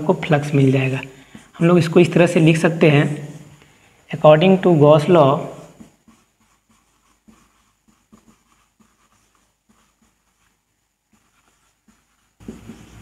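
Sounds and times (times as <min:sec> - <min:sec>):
low steady background noise: 0:00.0 - 0:13.0
scratching strokes of writing: 0:04.7 - 0:13.0.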